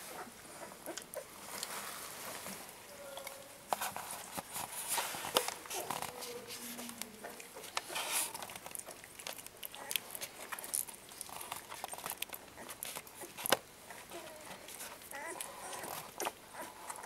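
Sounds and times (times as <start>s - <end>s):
dog licking puppies: 0.0s - 17.0s
puppies suckling: 0.0s - 17.0s
rustling on blanket: 1.3s - 2.9s, 3.7s - 7.0s.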